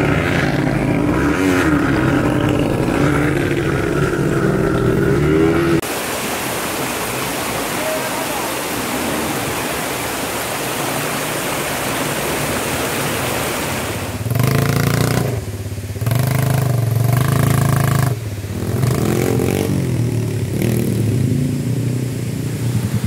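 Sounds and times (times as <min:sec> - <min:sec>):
quad engine revving: 0:00.0 - 0:05.9, 0:13.8 - 0:22.0
stream rushing over rocks: 0:00.0 - 0:23.0.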